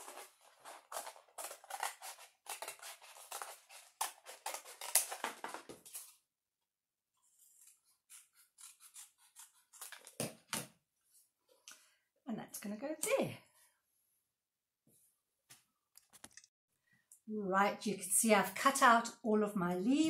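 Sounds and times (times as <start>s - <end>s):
scissors snipping cardboard: 0.0s - 5.8s, 7.6s - 10.7s.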